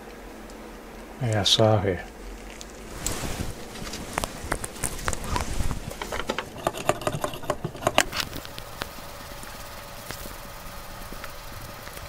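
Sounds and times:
faint steady hum: 0.0 - 12.0
cloth rubbing: 2.6 - 8.5.

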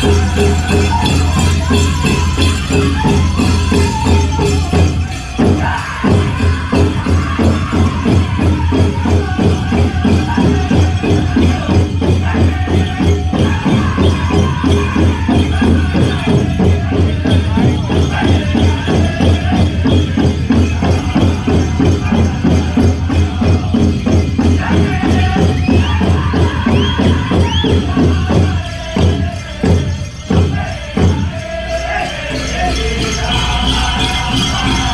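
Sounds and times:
bells jingling: 0.0 - 34.9
big drum beat: 0.0 - 34.9
men singing: 0.0 - 34.9.

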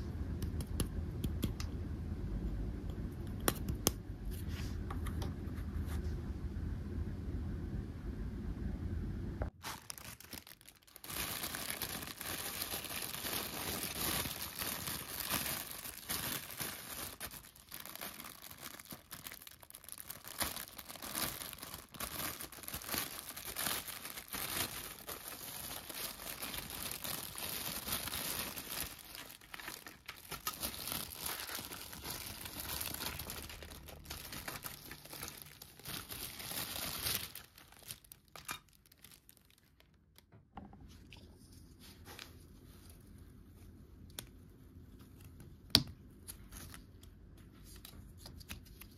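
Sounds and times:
plastic bag crinkling: 9.5 - 40.0.

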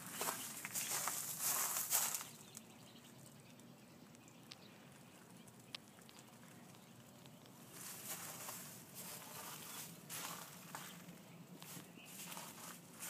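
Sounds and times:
footsteps and rustling: 0.0 - 2.4, 7.6 - 13.0
faint clicks: 3.5 - 7.6.

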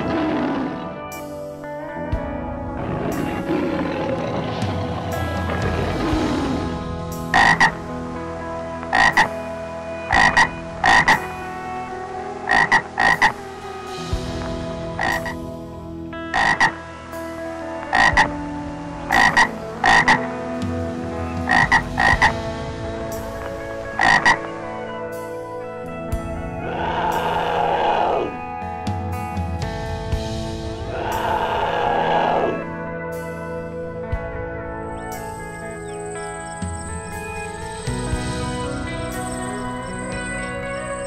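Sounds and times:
frogs croaking: 2.8 - 8.0, 8.6 - 13.8, 15.0 - 15.4, 16.2 - 18.4, 19.0 - 22.5, 23.4 - 24.5, 30.8 - 32.6, 34.9 - 41.0.

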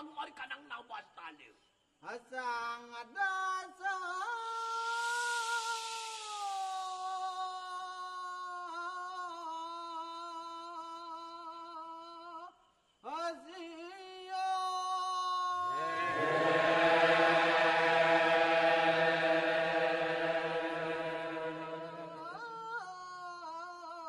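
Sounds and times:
single voice chanting long notes: 15.6 - 22.7
chorus of lower voices: 15.6 - 23.0.

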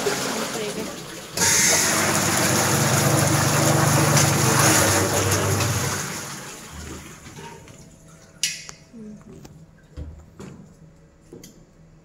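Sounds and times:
mixer churning water: 0.0 - 8.4.

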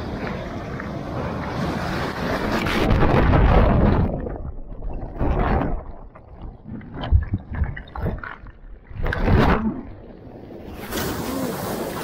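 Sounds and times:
wind rumbling on microphone: 0.0 - 11.9
ocean wave breaking: 10.6 - 12.0.

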